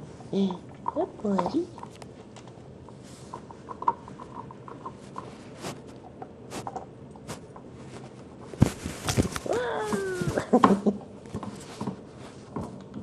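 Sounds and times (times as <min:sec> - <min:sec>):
fur rubbing against microphone: 0:05.0 - 0:06.7, 0:07.3 - 0:10.4.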